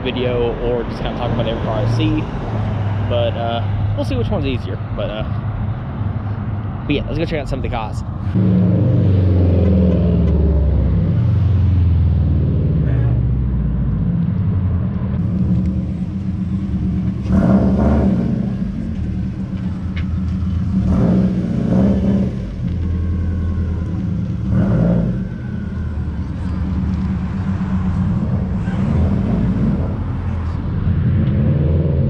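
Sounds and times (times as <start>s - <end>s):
car engine low rumble: 0.0s - 32.0s.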